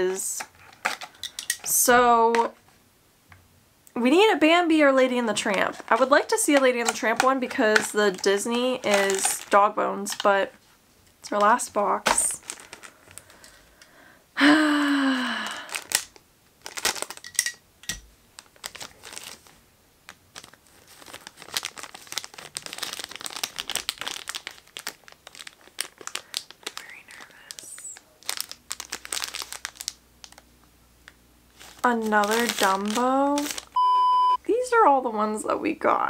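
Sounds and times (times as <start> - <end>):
plastic wrapper crinkling and tearing: 0.4 - 1.7, 5.4 - 10.6, 11.3 - 13.6, 15.2 - 30.5, 31.5 - 33.8.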